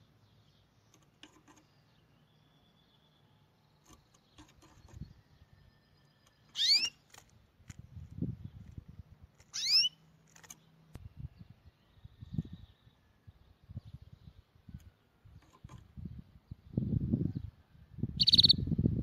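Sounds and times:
short high squeaks: 0:06.5 - 0:07.2, 0:09.4 - 0:10.6.

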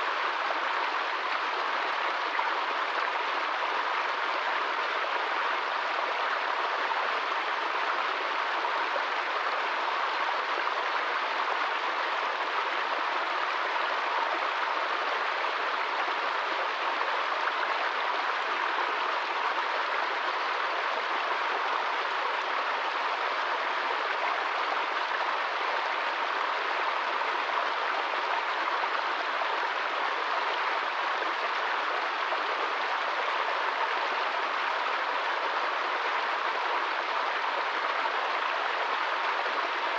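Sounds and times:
stream splashing over rocks: 0:00.0 - 0:39.9.

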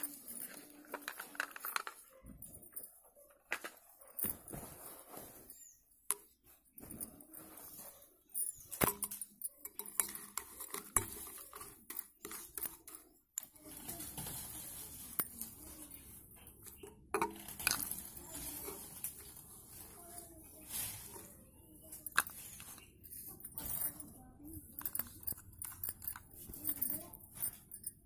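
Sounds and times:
metal spoon clinking against glass: 0:08.4 - 0:13.1, 0:22.1 - 0:28.0.

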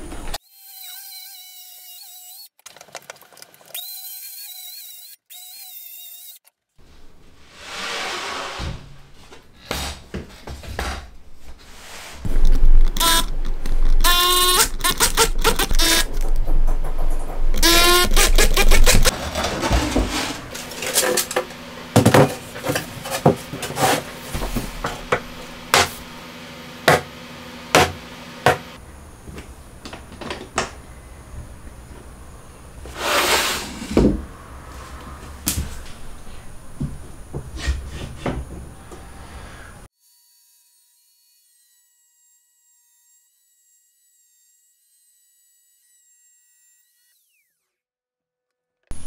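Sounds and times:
scraping on wooden board: 0:17.5 - 0:26.1, 0:32.8 - 0:34.3, 0:36.8 - 0:39.7.

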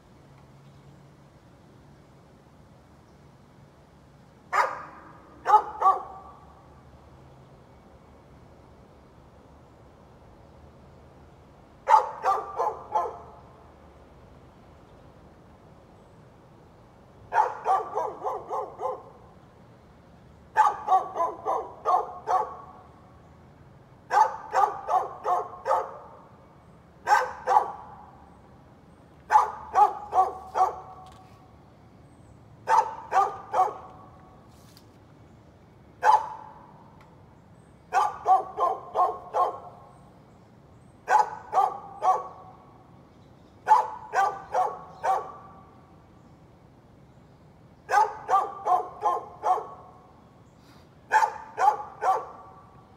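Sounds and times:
dog barking: 0:04.5 - 0:06.4, 0:11.9 - 0:13.3, 0:17.3 - 0:19.2, 0:20.6 - 0:22.7, 0:24.1 - 0:26.1, 0:27.0 - 0:27.9, 0:29.3 - 0:31.0, 0:32.7 - 0:34.0, 0:36.0 - 0:36.6, 0:37.9 - 0:39.8, 0:41.1 - 0:42.5, 0:43.6 - 0:45.5, 0:47.9 - 0:49.9, 0:51.1 - 0:52.5.

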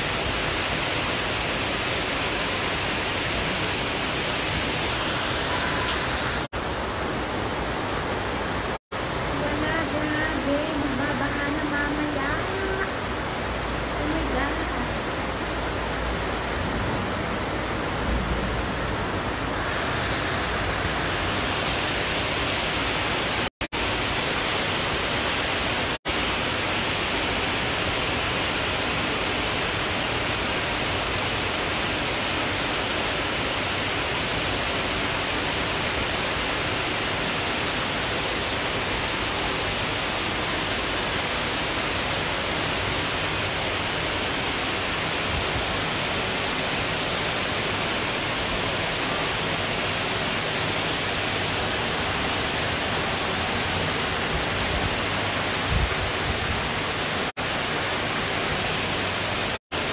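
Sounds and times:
heavy rain pouring: 0:00.0 - 0:59.9.

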